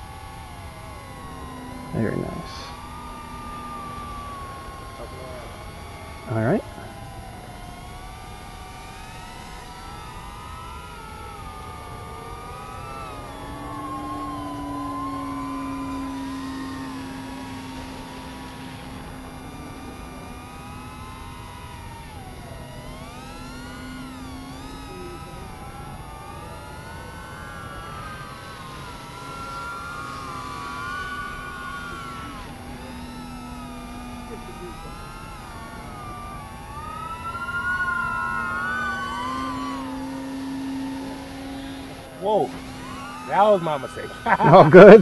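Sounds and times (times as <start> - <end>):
drone propellers whining: 0.0 - 45.0.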